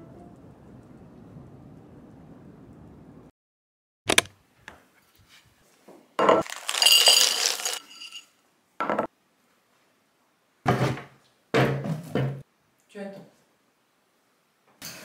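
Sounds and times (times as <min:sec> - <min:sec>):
dry kibble rattling into bowl: 0:06.4 - 0:08.2.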